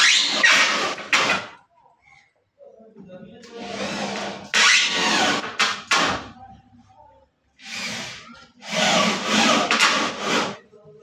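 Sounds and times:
power drill driving screws: 7.6 - 10.5.

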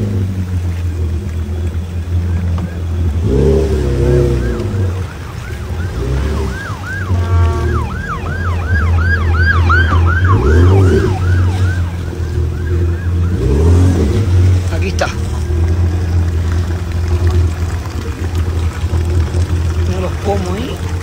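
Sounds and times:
low rumble: 0.0 - 21.0
siren yelping: 3.6 - 15.1
short horn blast: 7.0 - 8.2.

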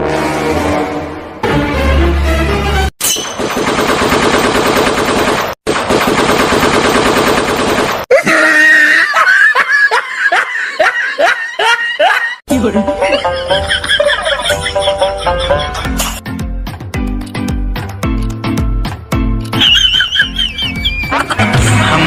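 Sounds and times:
automatic rifle fire bursts: 3.4 - 8.0.

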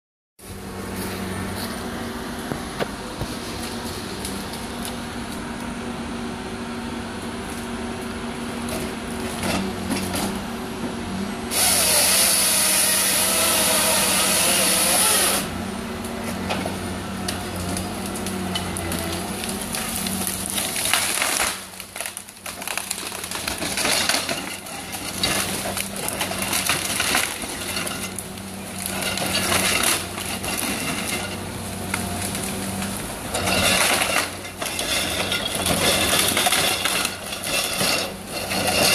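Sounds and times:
harvester engine and hydraulics: 0.4 - 38.9
saw cutting through tree trunk: 11.5 - 15.6.

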